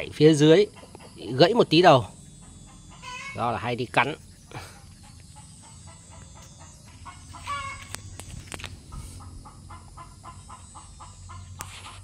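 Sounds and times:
animal pitched call: 1.0s - 8.2s.

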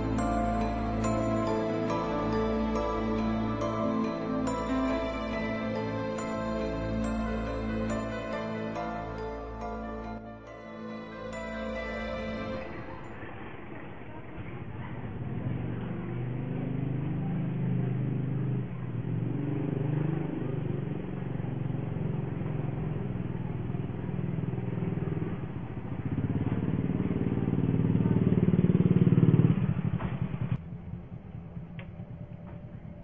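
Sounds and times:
small motorcycle engine: 12.2s - 33.0s.

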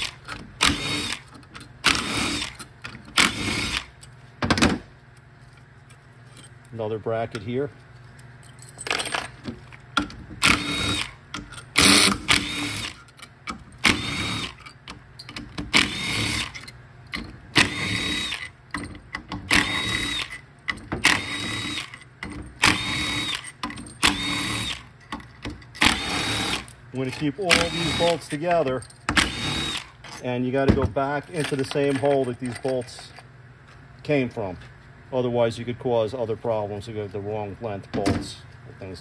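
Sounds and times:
power driver motor whine: 0.0s - 3.9s, 10.4s - 13.1s, 13.8s - 14.7s, 15.7s - 16.7s, 17.5s - 18.6s, 19.5s - 20.4s, 21.0s - 24.9s, 25.8s - 30.0s.

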